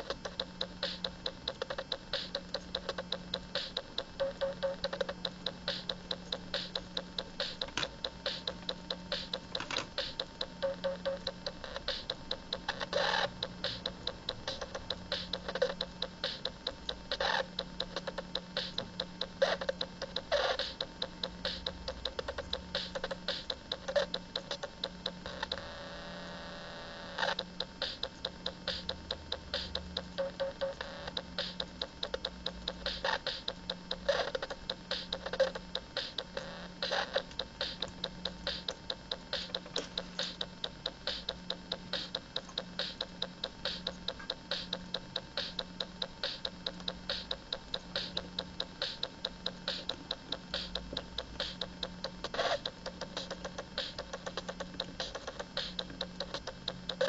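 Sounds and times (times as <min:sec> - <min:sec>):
electronic clicks and ticks: 0:00.0 - 0:26.2, 0:27.0 - 0:57.0
electronic drum hits: 0:36.8 - 0:51.8.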